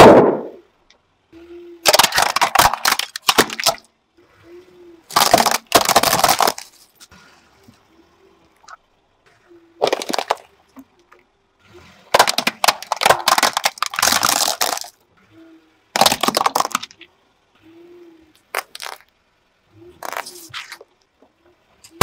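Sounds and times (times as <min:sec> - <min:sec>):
plastic toy cars cracking: 0:01.8 - 0:03.9, 0:05.1 - 0:06.9, 0:09.8 - 0:10.5, 0:12.0 - 0:15.0, 0:15.9 - 0:17.1, 0:18.4 - 0:19.1, 0:20.0 - 0:21.0.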